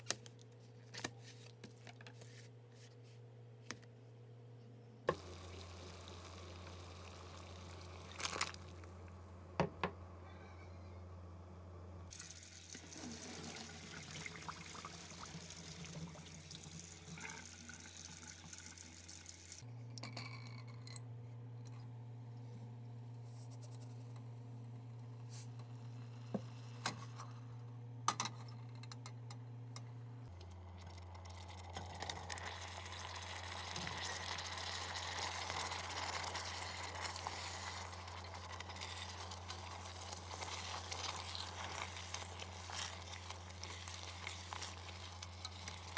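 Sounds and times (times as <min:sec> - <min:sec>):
sauce sizzling in pot: 0:05.1 - 0:08.8, 0:32.0 - 0:45.9.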